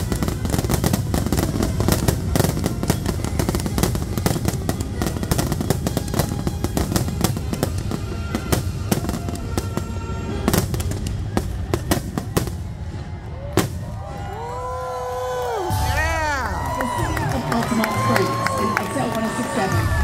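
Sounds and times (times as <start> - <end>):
fireworks bursting and crackling: 0.0 - 14.6
crowd whooping and cheering: 12.7 - 20.0.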